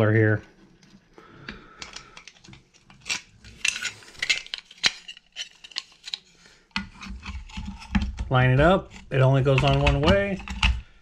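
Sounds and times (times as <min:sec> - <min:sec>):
small metal parts clinking: 0:01.8 - 0:06.3.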